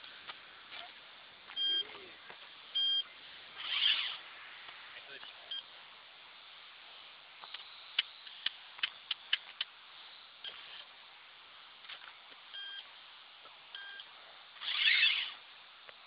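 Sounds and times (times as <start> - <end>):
short high beeps: 1.6 - 1.9, 2.8 - 3.1.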